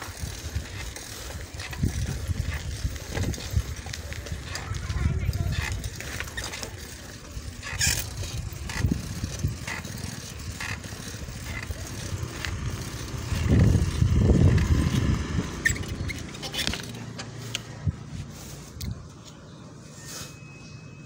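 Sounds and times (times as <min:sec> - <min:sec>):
wind rumble on microphone: 0:00.1 - 0:06.5, 0:07.2 - 0:16.8, 0:17.7 - 0:19.1.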